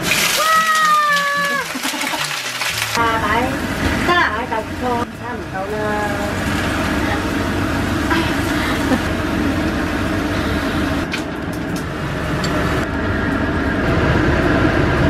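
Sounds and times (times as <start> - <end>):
food frying in a wok: 0.0 - 11.1
kitchen extractor running: 0.0 - 15.0.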